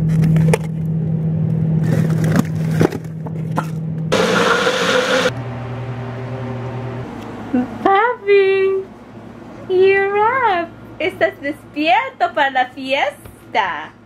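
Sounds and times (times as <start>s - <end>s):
blender motor whirring: 4.1s - 5.4s.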